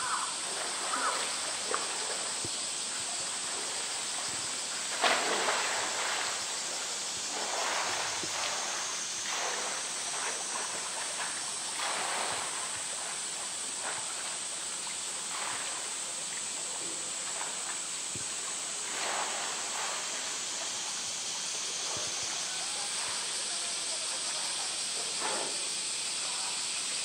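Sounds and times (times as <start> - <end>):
pool water splashing and sloshing: 0.0 - 27.0.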